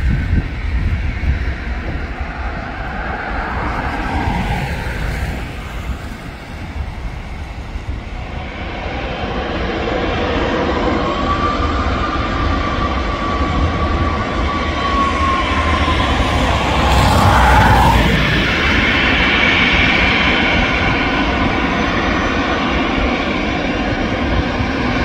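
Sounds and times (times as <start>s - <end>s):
high jet engine whine: 0.0s - 25.0s
jet engines roaring: 0.5s - 25.0s.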